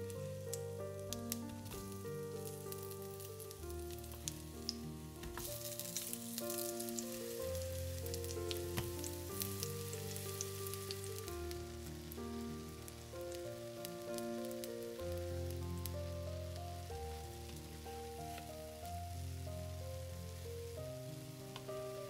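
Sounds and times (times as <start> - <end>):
food sizzling in hot oil: 0.0 - 22.0
slow held chords music: 0.0 - 22.0
oil popping: 1.1 - 11.5.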